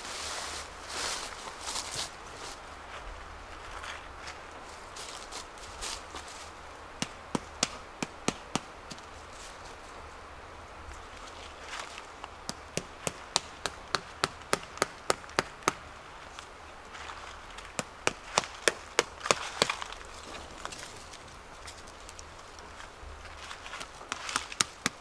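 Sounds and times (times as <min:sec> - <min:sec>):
sharp chopping strikes: 0:12.4 - 0:15.8, 0:17.8 - 0:19.9.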